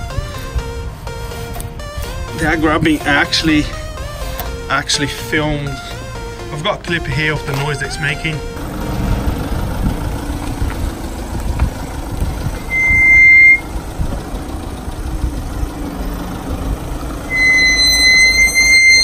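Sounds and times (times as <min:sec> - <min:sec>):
low rumble: 0:08.2 - 0:18.5
car brakes squealing: 0:12.4 - 0:13.8, 0:17.1 - 0:19.0.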